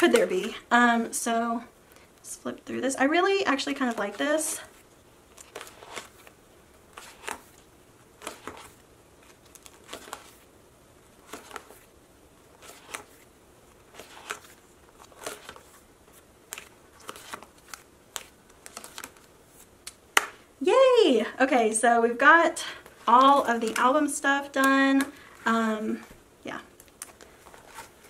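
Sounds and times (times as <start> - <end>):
plastic pages crinkling: 3.5 - 10.5, 11.1 - 20.3, 22.8 - 28.0.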